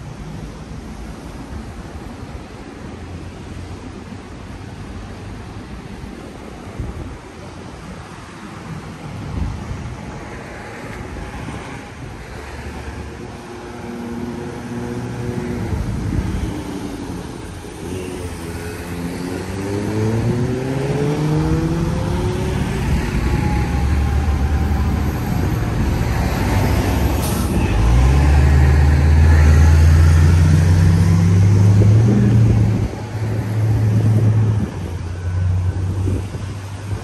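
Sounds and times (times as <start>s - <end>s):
vehicle accelerating away: 18.9s - 32.9s.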